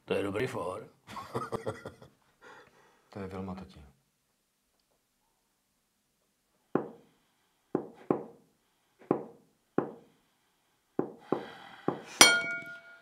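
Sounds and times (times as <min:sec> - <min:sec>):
sharp knocks: 0:06.8 - 0:07.0, 0:09.0 - 0:10.0
ringing clink: 0:12.2 - 0:13.0.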